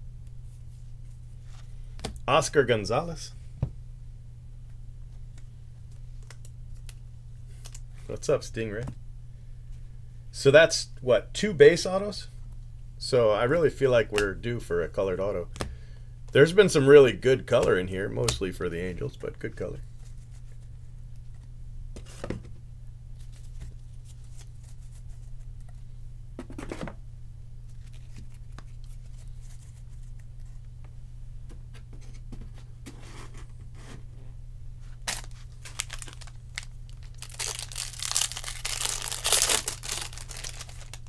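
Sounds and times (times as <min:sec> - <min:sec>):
low electrical hum: 0:00.0 - 0:41.0
foil wrapper tearing and crinkling: 0:35.0 - 0:41.0.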